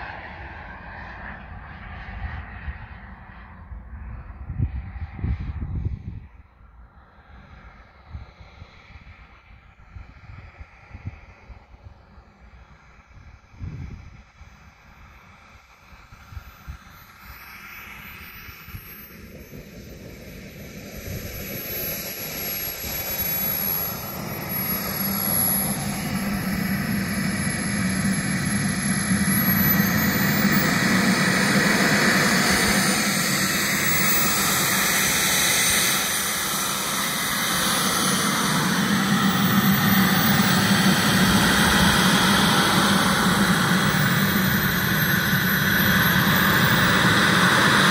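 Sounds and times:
model jet turbines running: 0:00.0 - 0:47.9
high turbine whistle: 0:14.9 - 0:47.9.

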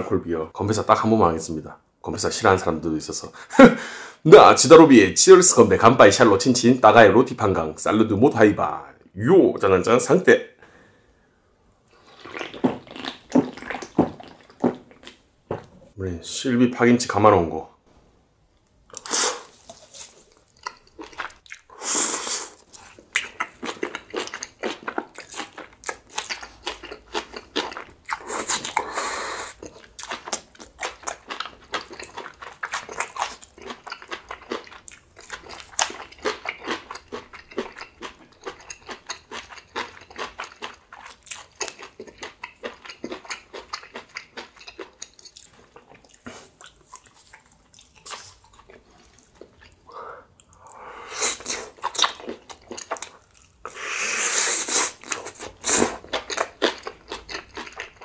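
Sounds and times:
close chewing clicks: 0:56.0 - 0:58.0.

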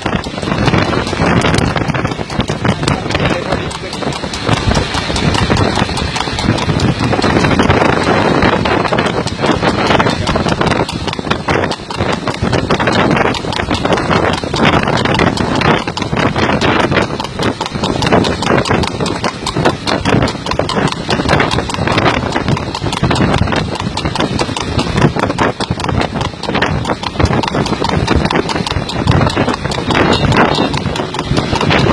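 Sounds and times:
motorcycle engines running: 0:00.0 - 0:07.8, 0:08.4 - 0:12.3, 0:28.3 - 0:31.9
horse hoofbeats on asphalt: 0:00.0 - 0:31.9.

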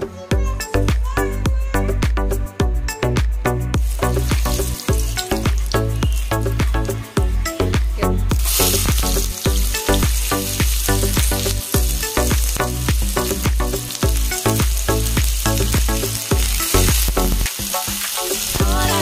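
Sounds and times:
background music with beat: 0:00.0 - 0:19.0
onions sizzling in hot oil: 0:03.8 - 0:07.7, 0:08.3 - 0:19.0.

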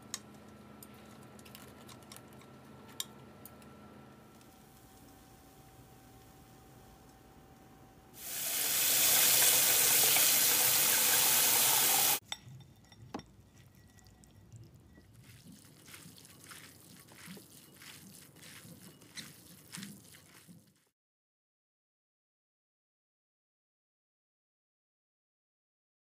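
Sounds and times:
water running into sink: 0:08.2 - 0:12.2
soft clicks and squishes of noodles: 0:13.6 - 0:20.8.

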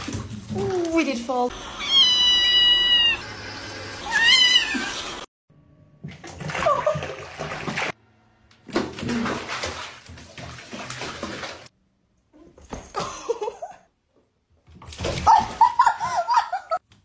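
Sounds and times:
cat crying: 0:01.7 - 0:03.3, 0:04.0 - 0:05.2
bathwater splashing: 0:06.0 - 0:08.0, 0:08.6 - 0:11.8, 0:14.7 - 0:16.8.

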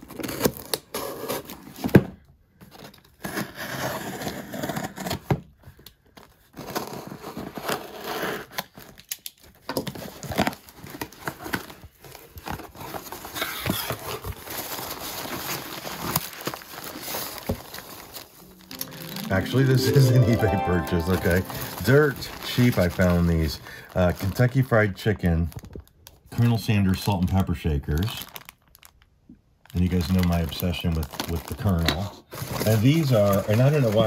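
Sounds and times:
cardboard tearing and rustling: 0:00.0 - 0:01.9
hands rummaging packing peanuts: 0:18.6 - 0:24.6.

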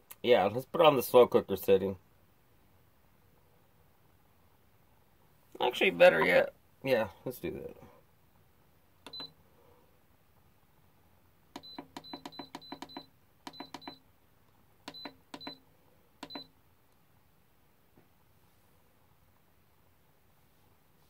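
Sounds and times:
button clicks with short high beeps: 0:09.1 - 0:09.4, 0:11.6 - 0:14.0, 0:14.9 - 0:15.6, 0:16.2 - 0:16.5.

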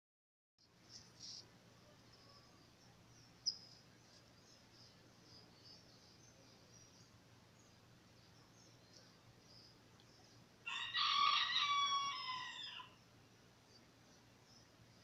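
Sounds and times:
faint high chirping: 0:00.6 - 0:15.0.

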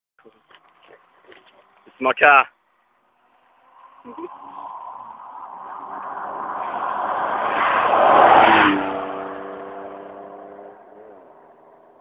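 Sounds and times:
car exhaust driving past: 0:03.0 - 0:12.0.

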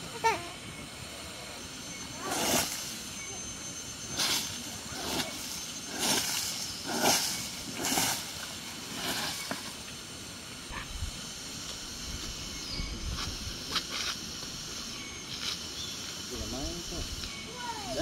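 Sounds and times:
broom sweeping sandy ground: 0:01.0 - 0:18.0.

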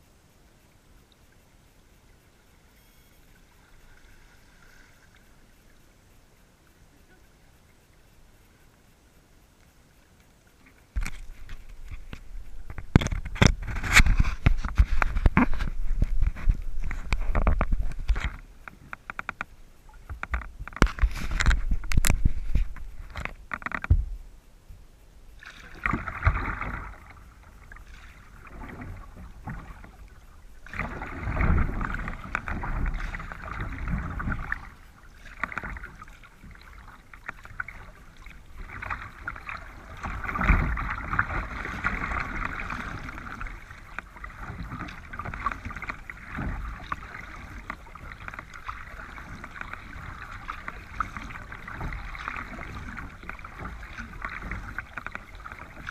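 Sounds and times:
paddle splashing water: 0:00.7 - 0:24.2, 0:25.3 - 0:55.9
low thump on microphone: 0:20.1 - 0:24.2.

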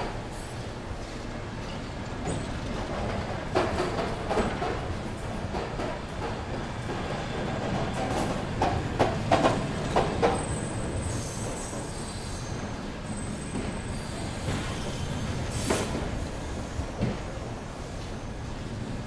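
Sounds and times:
train rumbling on rails: 0:00.0 - 0:19.0
high squeal of wheels and brakes: 0:01.6 - 0:02.6, 0:10.1 - 0:18.4.

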